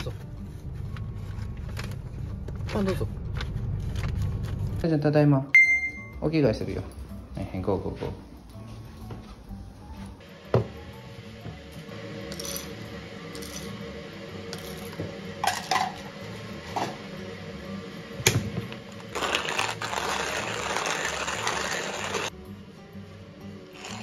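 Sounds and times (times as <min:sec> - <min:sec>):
coffee mill grinding beans: 0:12.2 - 0:13.8, 0:14.5 - 0:15.8, 0:18.8 - 0:22.3, 0:23.7 - 0:24.0.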